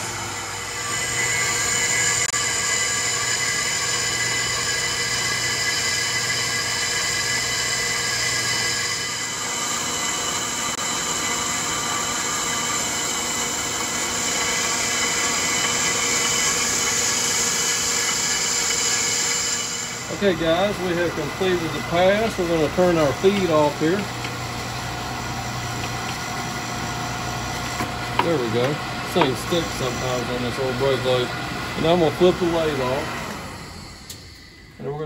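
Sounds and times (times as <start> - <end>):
high ringing tones: 0.0 - 24.0
brake lathe machining whir: 0.0 - 35.0.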